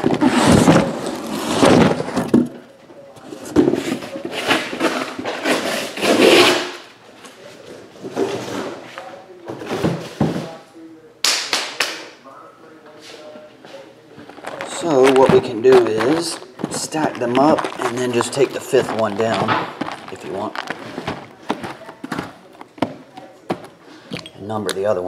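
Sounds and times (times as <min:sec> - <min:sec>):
cardboard and plastic wrap rustling: 0:00.0 - 0:02.6, 0:03.2 - 0:06.8, 0:14.2 - 0:24.1.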